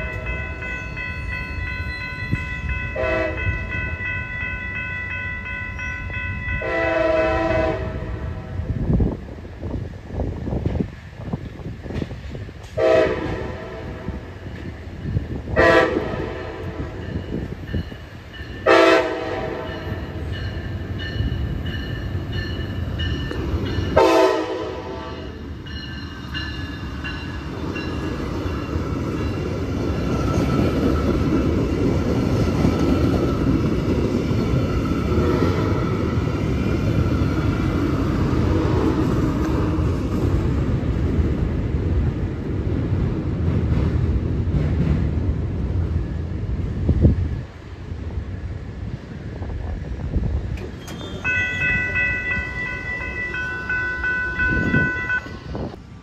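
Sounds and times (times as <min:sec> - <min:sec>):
train wheels on rails: 0:00.0 - 0:56.0
locomotive horn blasts: 0:02.9 - 0:03.7, 0:06.6 - 0:08.5, 0:12.8 - 0:14.1, 0:15.6 - 0:17.0, 0:18.6 - 0:20.0, 0:24.0 - 0:25.4.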